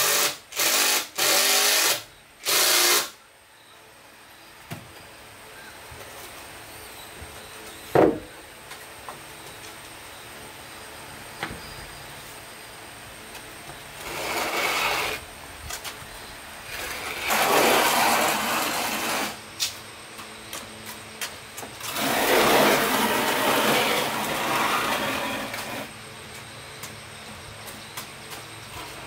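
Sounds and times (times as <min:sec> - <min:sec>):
wooden stools scraping concrete: 0:13.7 - 0:16.0, 0:16.6 - 0:26.0.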